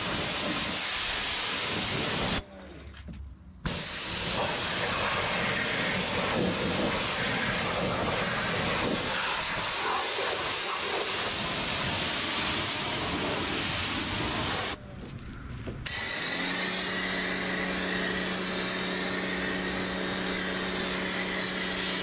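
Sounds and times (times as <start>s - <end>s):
pressure washer spraying water: 0.0s - 2.4s, 3.7s - 14.8s, 15.9s - 22.0s.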